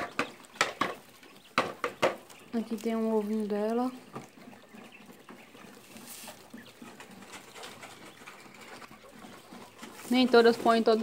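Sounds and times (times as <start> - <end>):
quails calling softly: 0.0 - 11.0.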